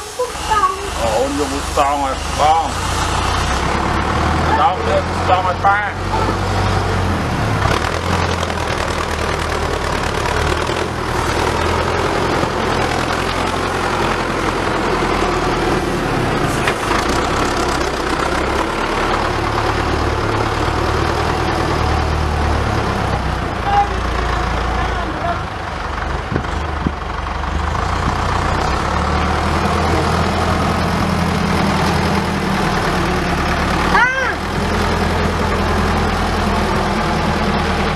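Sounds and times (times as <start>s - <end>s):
tractor engine running: 0.0s - 37.9s.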